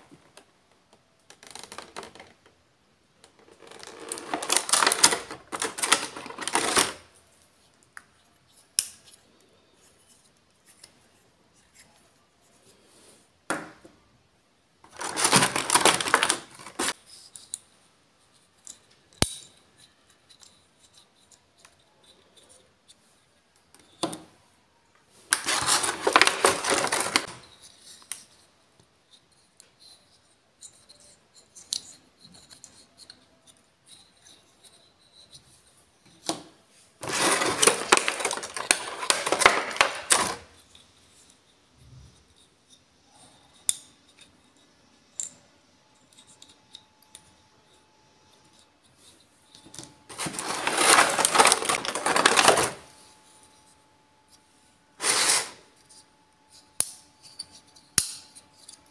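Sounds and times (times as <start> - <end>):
plastic blister tray crackling: 1.3 - 2.4, 3.2 - 7.1, 14.9 - 17.0, 25.3 - 27.4, 37.0 - 40.5, 50.1 - 52.9.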